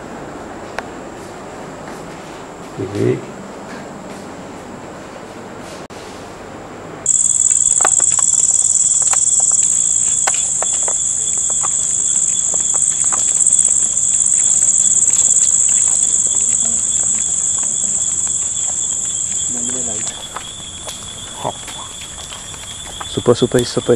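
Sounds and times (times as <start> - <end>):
faint clicks: 7.1 - 23.8
night insects trilling: 7.1 - 23.9.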